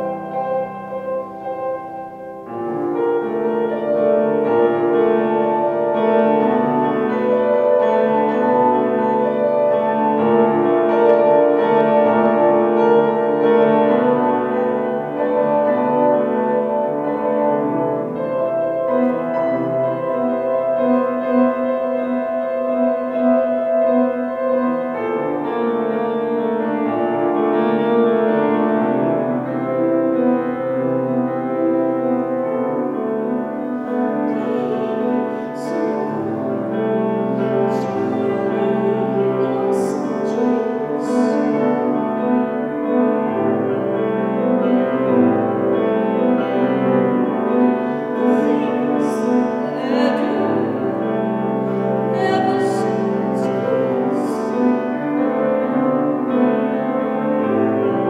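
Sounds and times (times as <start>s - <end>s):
piano playing slow chords: 0.0s - 58.0s
woman singing: 34.0s - 42.3s, 47.4s - 55.2s.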